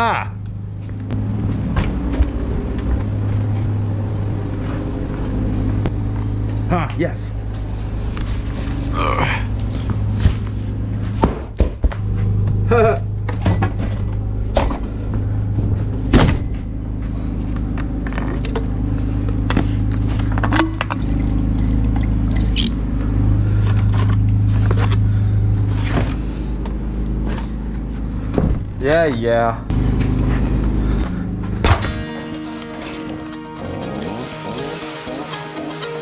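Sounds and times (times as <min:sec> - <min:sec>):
tools and jugs clattering: 0:12.5 - 0:15.0, 0:18.1 - 0:22.4.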